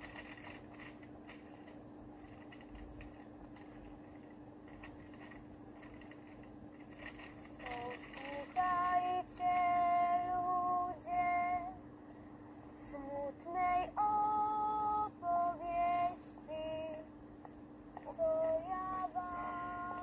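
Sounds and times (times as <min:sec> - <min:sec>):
woman singing a sad ballad: 0:07.6 - 0:11.8, 0:12.8 - 0:17.1, 0:18.0 - 0:20.0.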